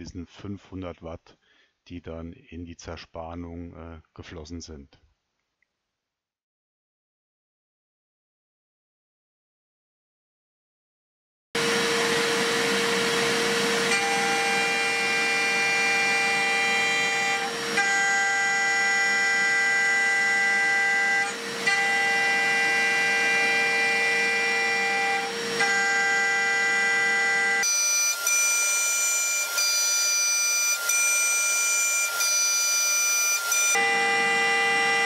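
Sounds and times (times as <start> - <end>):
mill spindle whine: 11.6 - 35.0.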